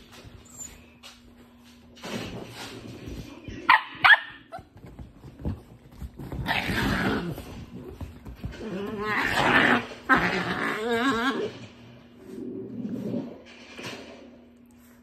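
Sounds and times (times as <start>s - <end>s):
dogs growling: 6.1s - 13.6s.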